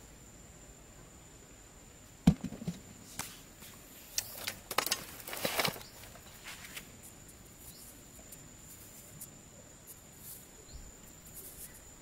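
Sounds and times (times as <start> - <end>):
ball thumping into sandy hole: 2.2 - 2.9
ball bouncing: 2.3 - 2.9
dirt rustling and scraping: 2.3 - 12.0.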